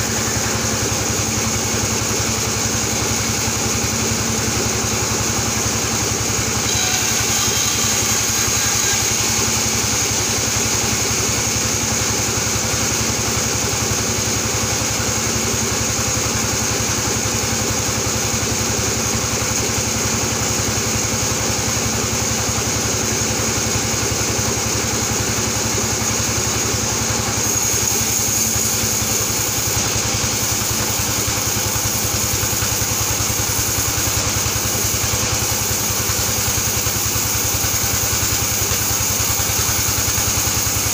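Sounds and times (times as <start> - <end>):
band saw cutting wood: 0.0 - 13.0, 26.7 - 40.9.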